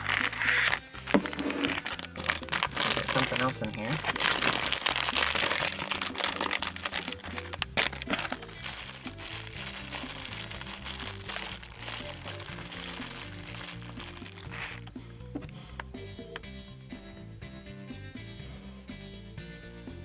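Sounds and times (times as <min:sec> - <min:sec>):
foil and plastic bag crinkling: 0:00.0 - 0:14.9
background music: 0:00.0 - 0:20.0.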